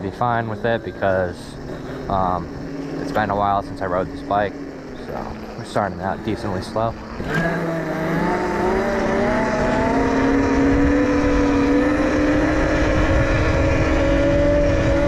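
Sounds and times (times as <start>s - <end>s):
electric motor whining: 0.0s - 15.0s
wind buffeting microphone: 8.6s - 15.0s.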